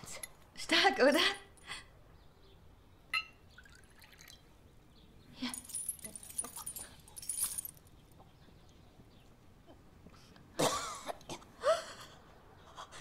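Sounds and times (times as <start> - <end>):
drink being poured: 3.5 - 4.4.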